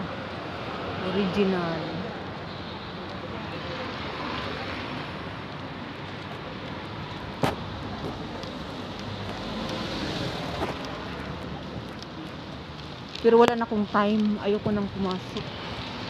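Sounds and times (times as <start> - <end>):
street traffic: 0.0 - 16.0.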